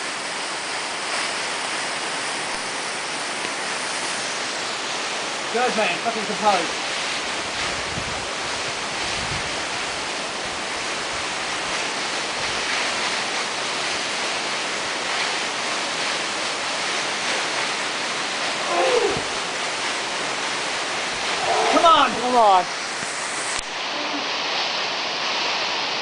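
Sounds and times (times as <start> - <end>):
waterfall rushing: 0.0 - 26.0
short falling voice sound: 18.6 - 19.4.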